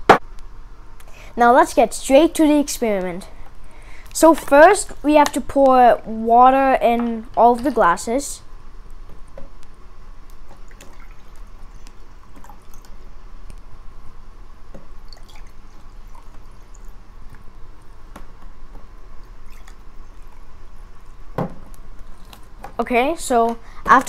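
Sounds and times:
water dripping: 10.3s - 13.6s, 14.7s - 18.2s, 19.2s - 22.8s
water pouring into glasses: 15.0s - 16.9s.

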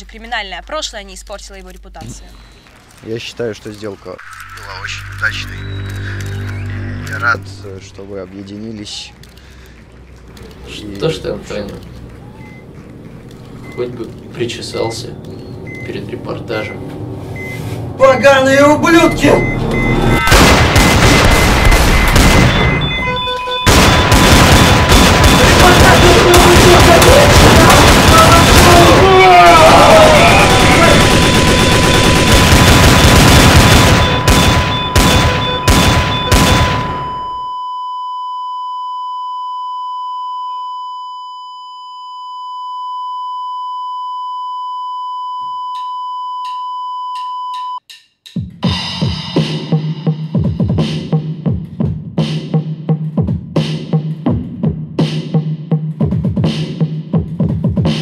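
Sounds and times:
patient monitor flatline beep: 4.3s - 7.6s, 12.4s - 12.7s, 13.6s - 20.3s, 21.4s - 23.7s, 33.9s - 47.8s
gunfire: 20.2s - 37.2s
music with steady drum beat: 47.8s - 58.0s.

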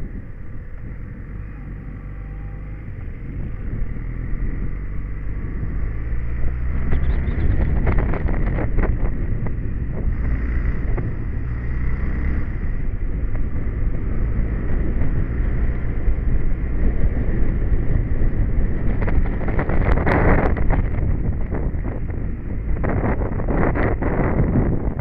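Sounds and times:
motorcycle engine running: 0.0s - 25.0s
wind noise on microphone: 0.0s - 25.0s.

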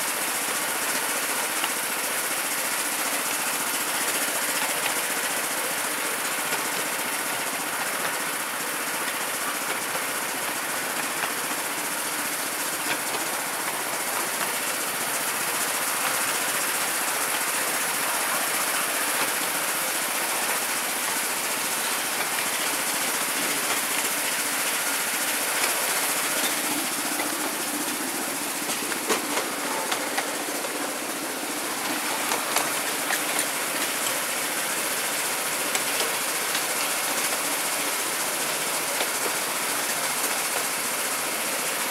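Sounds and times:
train wheels on rails: 0.0s - 41.9s.

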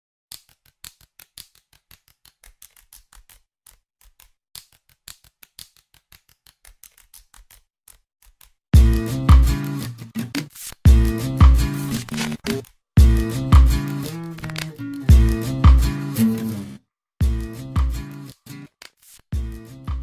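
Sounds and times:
loud guitar music: 8.8s - 18.7s, 19.4s - 20.0s.

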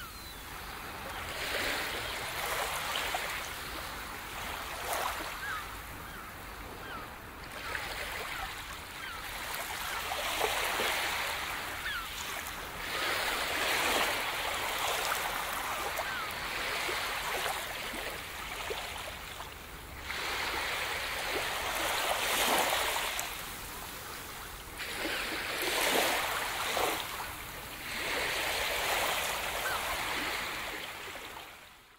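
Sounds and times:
waves washing onto sand: 9.0s - 31.6s.

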